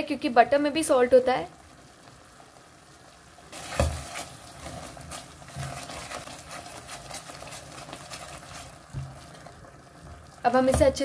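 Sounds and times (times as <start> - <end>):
metal spoon scraping a pan: 3.6 - 9.1.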